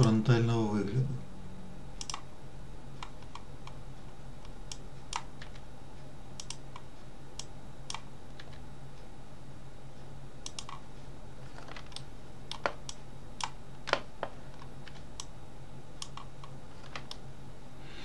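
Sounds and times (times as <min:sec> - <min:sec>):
low hum: 0:00.0 - 0:13.8
keyboard and mouse clicks: 0:02.0 - 0:02.3, 0:03.0 - 0:03.8, 0:04.4 - 0:05.6, 0:06.4 - 0:08.6, 0:10.4 - 0:10.8, 0:11.5 - 0:15.3, 0:16.0 - 0:17.2.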